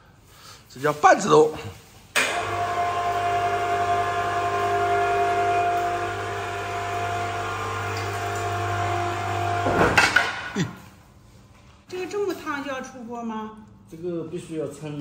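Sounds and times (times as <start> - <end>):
electric motor hum: 2.2 - 10.0.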